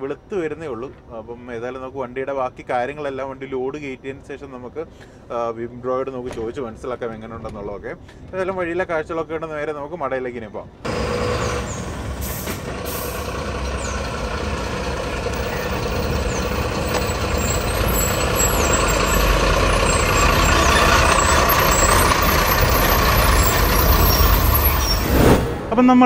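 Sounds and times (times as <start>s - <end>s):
truck diesel engine passing: 10.8s - 25.9s.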